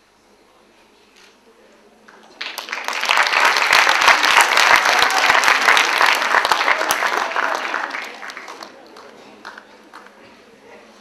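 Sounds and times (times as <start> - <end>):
audience applauding: 2.1 - 10.1.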